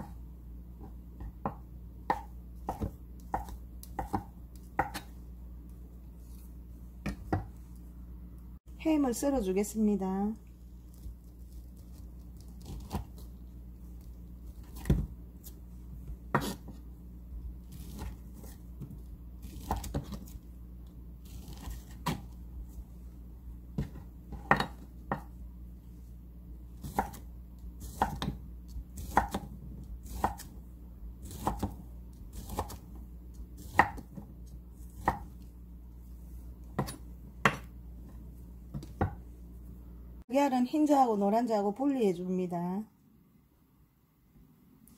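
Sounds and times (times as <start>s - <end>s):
knife chopping on wooden board: 0.8s - 5.1s, 7.0s - 7.6s, 16.3s - 16.8s, 17.7s - 20.3s, 21.2s - 22.3s, 23.8s - 25.3s, 26.8s - 27.2s, 27.8s - 28.4s, 29.0s - 30.5s, 31.2s - 32.9s, 33.6s - 34.3s, 35.0s - 35.4s, 36.7s - 37.7s, 38.7s - 39.2s.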